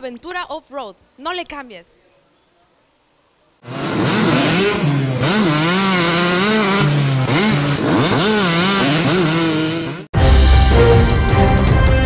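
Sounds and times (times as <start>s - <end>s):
motorcycle engine revving: 3.6s - 10.1s.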